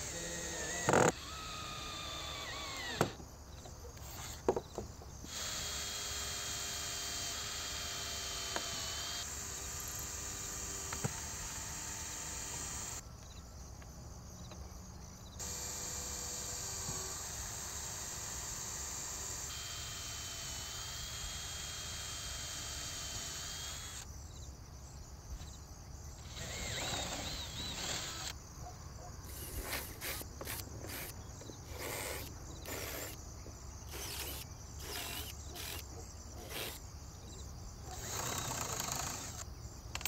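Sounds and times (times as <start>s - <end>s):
cordless drill motor whining: 0.0s - 3.2s, 4.0s - 4.5s, 5.3s - 13.0s, 15.4s - 24.1s, 26.2s - 28.4s, 29.3s - 33.2s, 33.9s - 36.8s, 37.9s - 40.0s.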